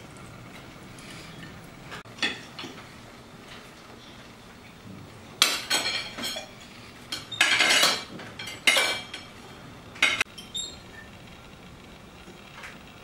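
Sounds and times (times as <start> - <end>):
knife and fork scraping plates: 5.4 - 9.3.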